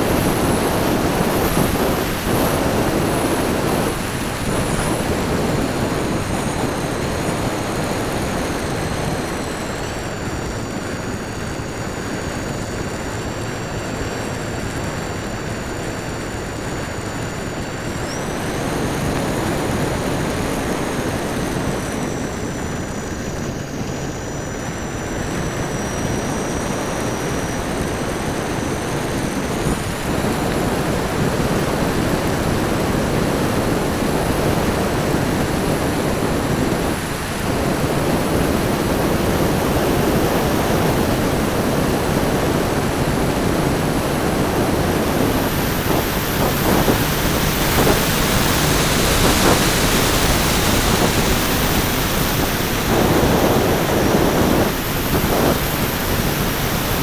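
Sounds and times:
high whine of model motors: 0:00.0 - 0:57.0
wind rushing over microphone: 0:00.0 - 0:57.0.

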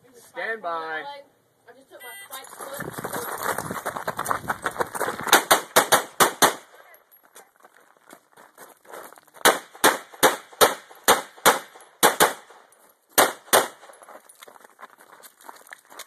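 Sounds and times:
handgun shots: 0:05.3 - 0:06.7, 0:09.4 - 0:12.5, 0:13.2 - 0:13.9.

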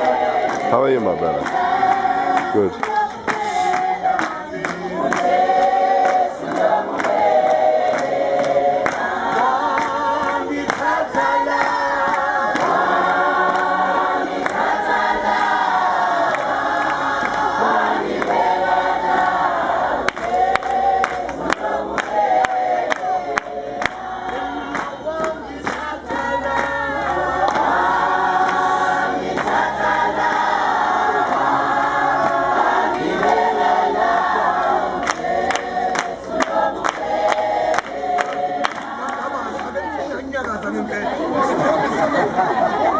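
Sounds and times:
crowd singing together: 0:00.0 - 0:42.9.

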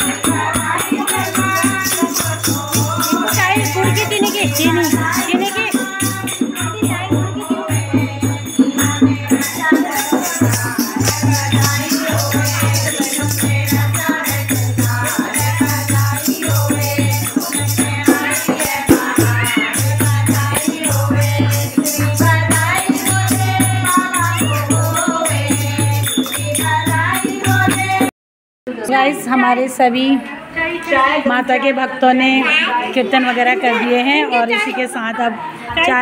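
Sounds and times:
rattle keeping rhythm: 0:00.0 - 0:28.1
women singing devotional song: 0:00.0 - 0:28.1, 0:28.7 - 0:36.0.

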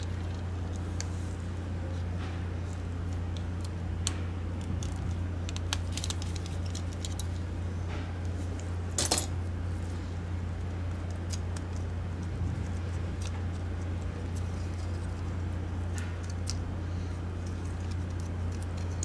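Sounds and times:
steady low hum: 0:00.0 - 0:19.0
small plastic parts clicking: 0:17.4 - 0:19.0.

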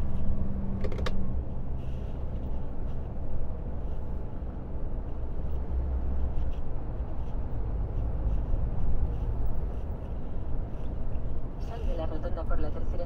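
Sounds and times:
truck engine and tyre noise: 0:00.0 - 0:13.0.

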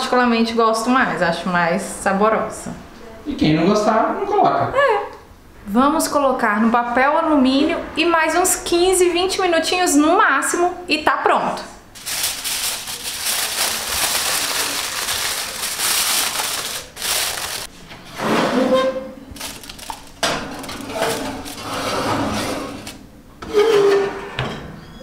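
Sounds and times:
aluminium foil crinkling: 0:12.0 - 0:17.7, 0:19.3 - 0:23.0
dish scraping and knocking in oven: 0:20.2 - 0:24.8.

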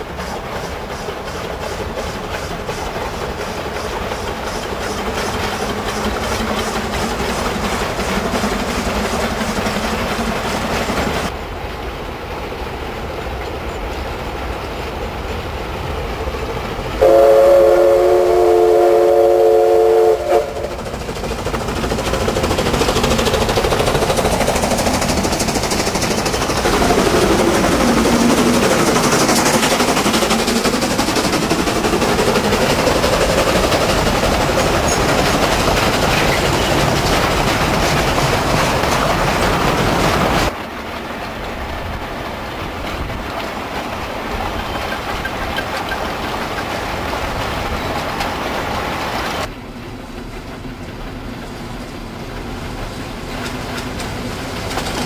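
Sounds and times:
steam locomotive running: 0:00.0 - 0:55.0
steam whistle blast: 0:17.0 - 0:20.7.

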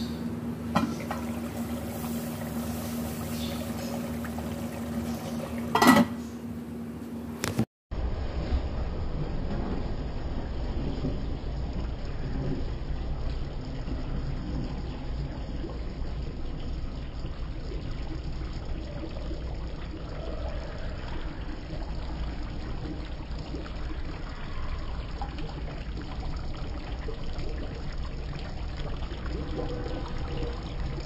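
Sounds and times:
curry bubbling in pot: 0:08.7 - 0:31.0.

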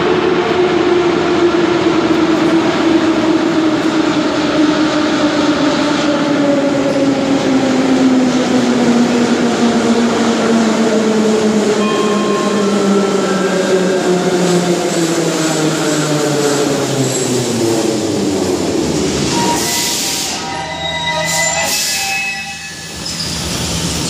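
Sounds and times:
brief high tones: 0:11.8 - 0:13.5.

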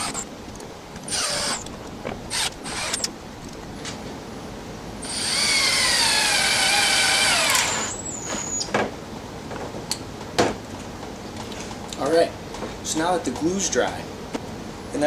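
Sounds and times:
cordless drill whining: 0:00.0 - 0:03.8, 0:05.0 - 0:08.5
drill handling knocks: 0:00.0 - 0:03.8.

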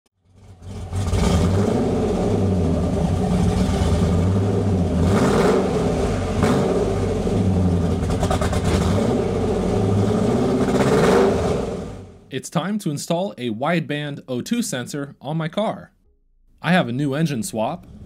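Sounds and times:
car engine exhaust note: 0:00.3 - 0:12.3.

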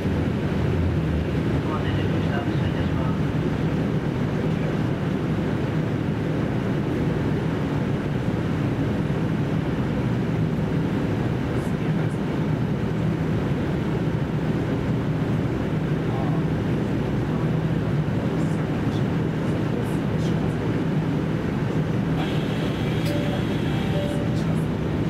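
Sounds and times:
diesel engine drone: 0:00.0 - 0:25.0
wheel and rail noise: 0:22.1 - 0:25.0.

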